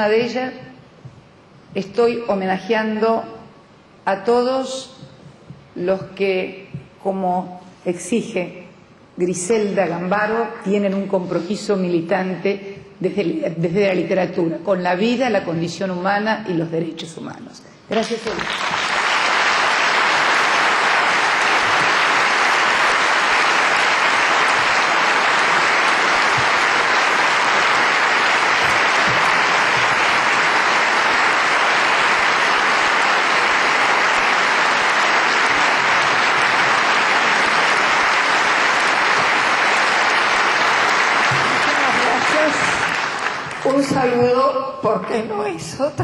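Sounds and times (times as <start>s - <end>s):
audience applauding: 18.0s - 44.2s.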